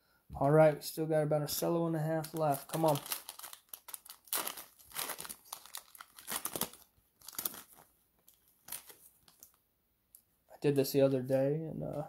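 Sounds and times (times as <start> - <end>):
plastic wrapper crinkling and tearing: 2.2 - 9.6.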